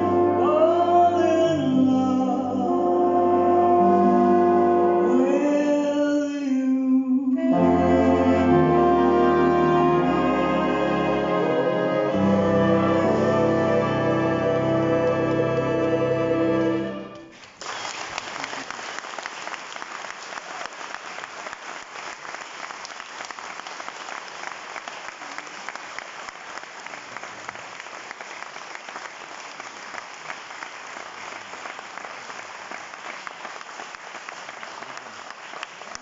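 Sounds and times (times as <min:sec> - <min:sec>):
audience applauding: 0:17.2 - 0:36.0.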